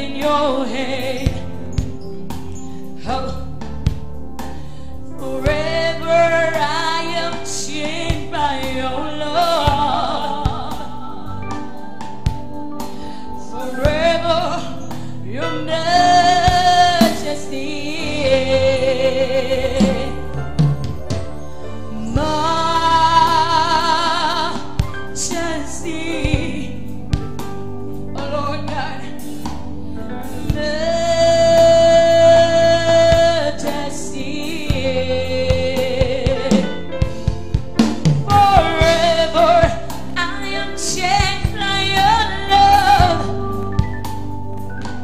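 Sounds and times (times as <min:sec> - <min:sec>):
woman singing with vibrato: 0:00.0 - 0:01.7, 0:05.2 - 0:11.6, 0:13.4 - 0:20.6, 0:21.9 - 0:26.9, 0:30.4 - 0:36.8, 0:38.2 - 0:44.0
sustained instrumental accompaniment: 0:00.0 - 0:45.0.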